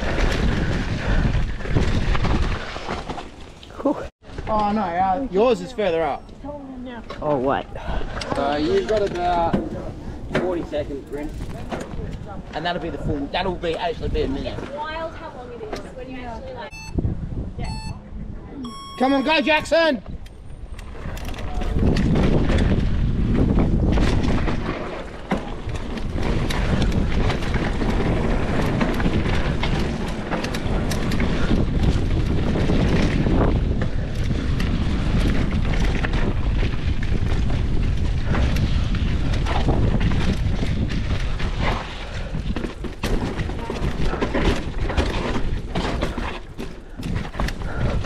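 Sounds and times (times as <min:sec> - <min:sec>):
wind buffeting microphone: 0:00.0 - 0:02.9, 0:06.3 - 0:18.6, 0:19.4 - 0:48.0
bike knocks and rattles: 0:08.4 - 0:12.8, 0:21.0 - 0:48.0.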